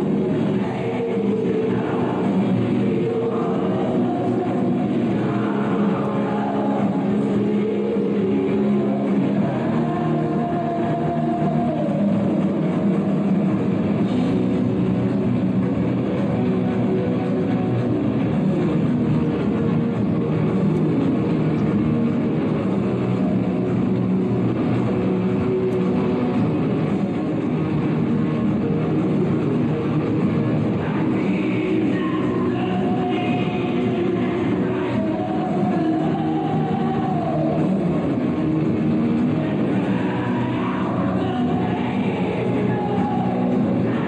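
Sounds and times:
electric guitar: 0.0 - 44.0
heavy metal band playing live: 0.0 - 44.0.

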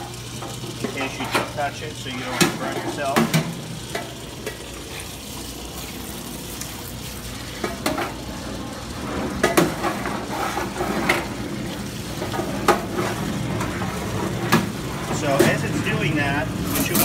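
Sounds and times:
hot oil splashing: 0.0 - 17.0
oil filtration pump running: 0.0 - 17.0
metal wand knocking on fryer: 2.3 - 4.6, 9.4 - 9.8.

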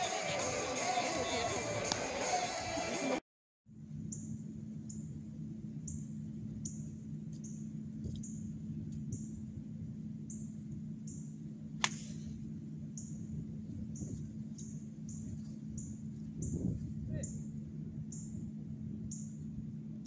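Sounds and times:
steady low hum: 3.7 - 20.0
golf club striking ball: 11.8 - 12.4.

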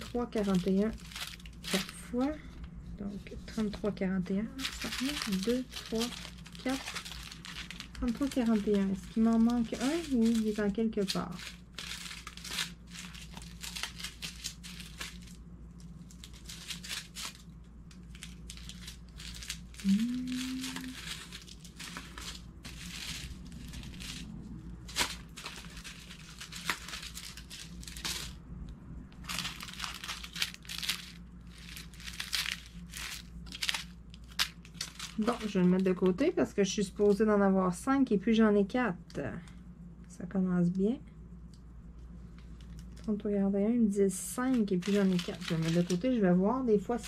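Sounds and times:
plastic bags crinkling: 0.0 - 2.5, 3.5 - 28.4, 29.1 - 36.3, 42.4 - 43.2, 44.4 - 47.0
person humming: 19.8 - 21.2.

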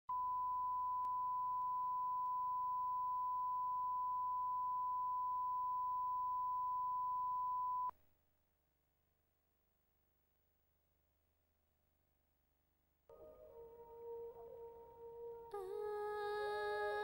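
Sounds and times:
pure reference tone: 0.1 - 7.9.

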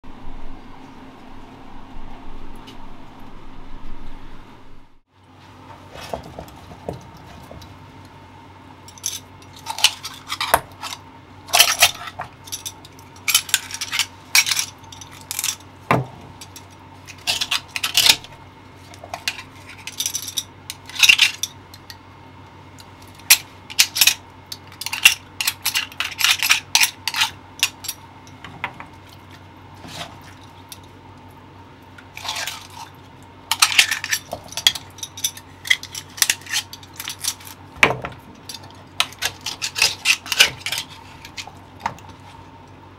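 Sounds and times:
knife scraping clam shells: 8.9 - 15.7, 16.4 - 18.3, 23.2 - 28.0, 32.1 - 37.6, 38.4 - 42.3.

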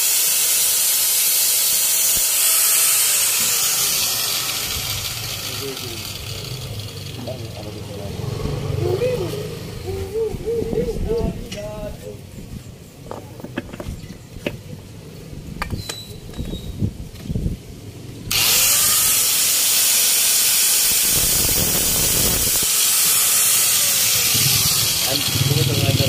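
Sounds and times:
electric grinder running: 0.0 - 9.7, 18.3 - 26.0.

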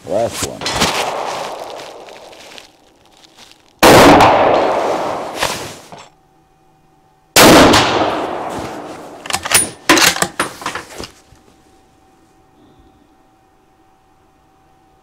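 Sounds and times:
rifle shot echoing: 1.0 - 1.7, 3.8 - 5.4, 7.4 - 8.9
rifle bolt metallic clacks: 9.2 - 10.5.

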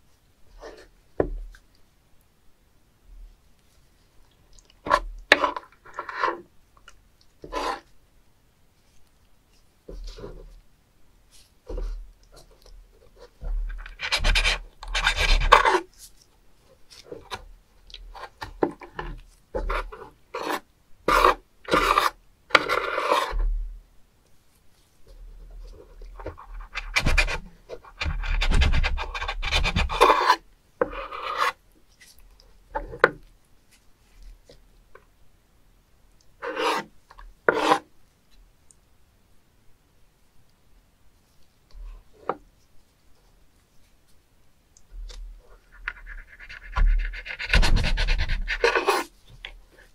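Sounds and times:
knife scraping wet cutting board: 29.9 - 31.6, 36.4 - 36.9, 37.5 - 37.8, 48.4 - 49.1.

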